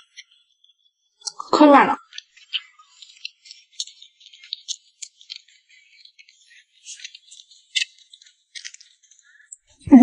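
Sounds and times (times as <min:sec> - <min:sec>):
chewing sticky cake: 0:00.1 - 0:10.0.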